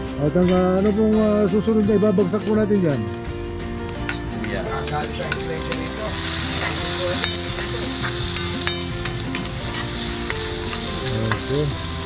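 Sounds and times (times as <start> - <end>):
food sizzling in a frying pan: 0.0 - 12.0
metal spatula scraping a pan: 4.4 - 11.6.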